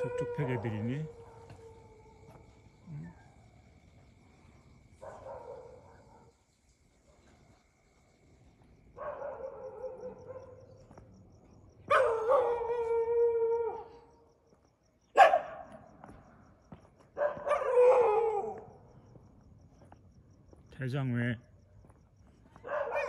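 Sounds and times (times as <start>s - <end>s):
dogs howling: 0.0s - 2.5s, 11.9s - 14.1s, 17.2s - 18.8s.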